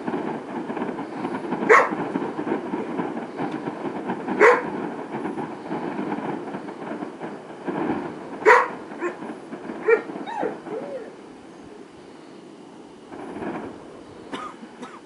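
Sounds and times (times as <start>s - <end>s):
dog barking: 1.7s - 2.0s, 4.4s - 4.7s, 8.4s - 9.2s, 9.8s - 10.8s.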